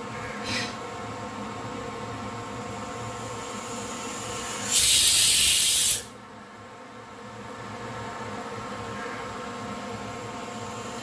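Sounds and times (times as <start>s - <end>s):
pressure cooker steam hiss: 3.0s - 6.1s.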